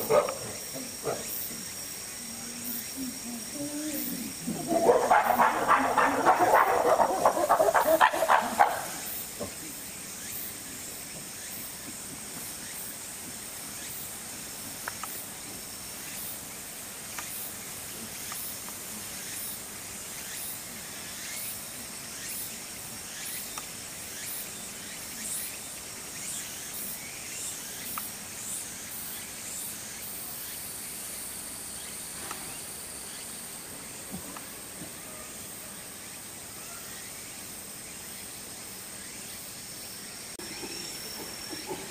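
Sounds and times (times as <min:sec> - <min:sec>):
insect trilling: 0:00.0 - 0:13.1, 0:19.2 - 0:41.9
insect chirping: 0:00.0 - 0:41.9
faint clicks: 0:14.8 - 0:15.2.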